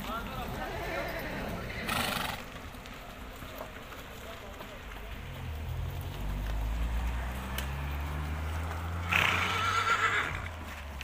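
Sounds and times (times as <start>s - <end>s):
horse neighing: 0.7s - 2.5s, 9.0s - 10.5s.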